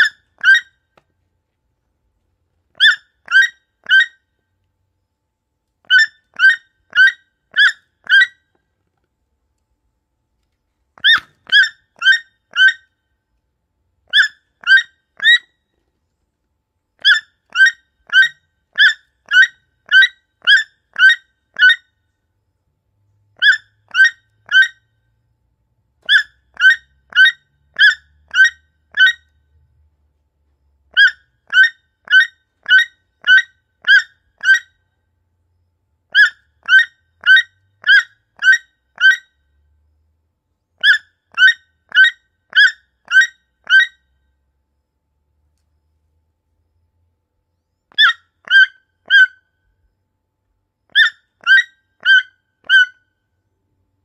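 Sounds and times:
toucan calling: 0.0 - 0.8, 2.8 - 4.2, 5.8 - 8.4, 11.0 - 13.0, 14.1 - 15.5, 17.0 - 21.9, 23.4 - 24.8, 26.0 - 29.3, 30.9 - 34.8, 36.1 - 39.3, 40.8 - 44.0, 47.9 - 49.5, 50.9 - 53.0.

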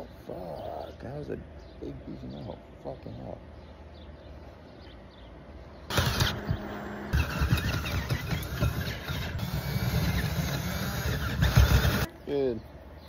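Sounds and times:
cordless drill drilling into metal: 5.9 - 12.1.

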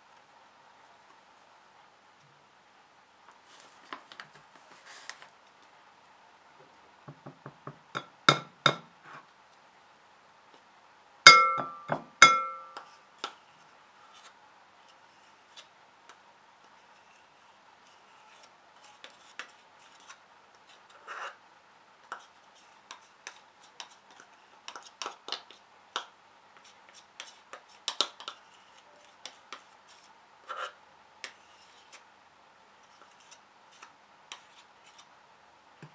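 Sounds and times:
cup knocking glass bowl: 11.3 - 12.7.

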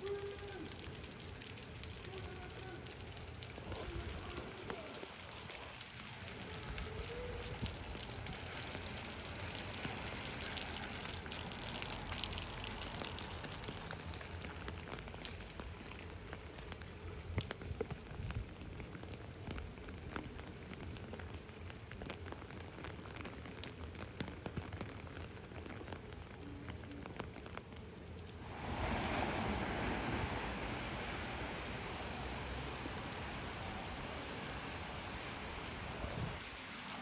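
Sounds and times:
rain falling on pavement: 0.0 - 37.0
water drips: 0.0 - 37.0.

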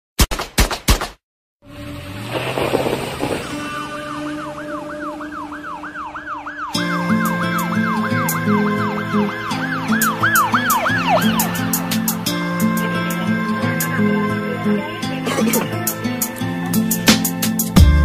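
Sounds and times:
warbling siren-like synth: 3.5 - 15.1
held synth chord: 3.6 - 17.1
bass and drum beat: 16.8 - 18.0.

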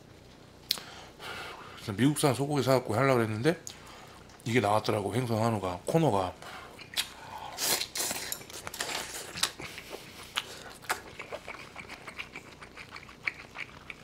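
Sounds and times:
close chewing of food: 6.8 - 14.0.

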